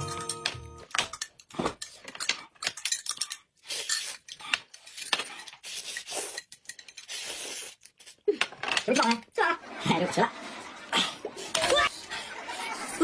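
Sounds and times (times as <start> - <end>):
utensils clinking on plate and glass: 0.0 - 7.1
noodles slurping: 3.4 - 8.4.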